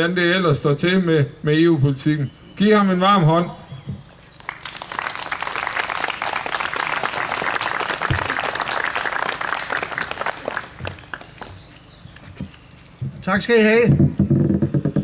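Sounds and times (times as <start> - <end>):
crowd applauding: 4.4 - 11.8.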